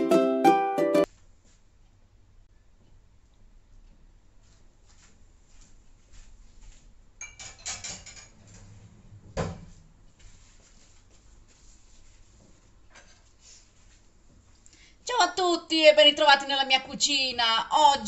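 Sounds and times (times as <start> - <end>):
dishes clinking: 7.2 - 8.7.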